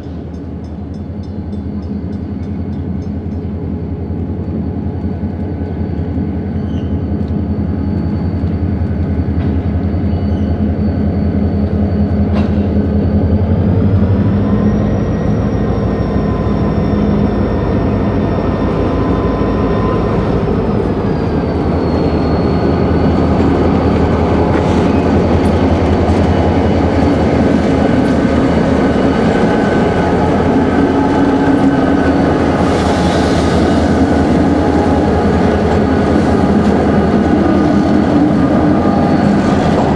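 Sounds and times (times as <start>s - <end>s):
diesel locomotive engine running: 0.0s - 39.9s.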